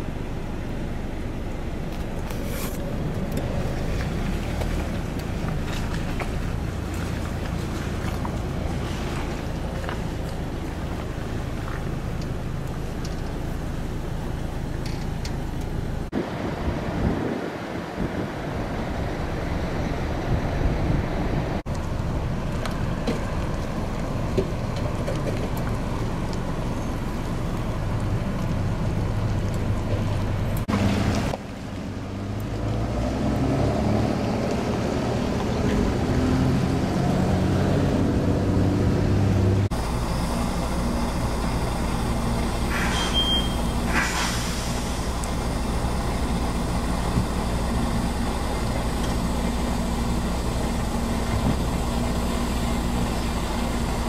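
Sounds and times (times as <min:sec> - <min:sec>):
engine humming: 0:00.0 - 0:54.0
short high beep: 0:42.7 - 0:43.8.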